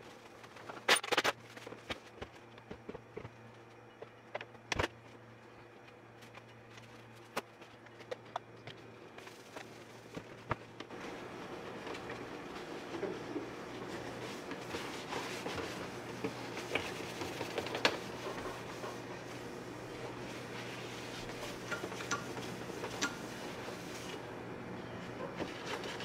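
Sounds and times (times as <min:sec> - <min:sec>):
cloth rubbing on plastic: 0:12.4 - 0:21.7.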